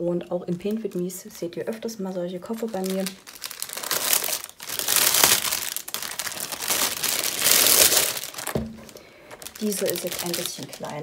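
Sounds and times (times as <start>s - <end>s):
plastic bag rustling and crackling: 2.4s - 11.0s.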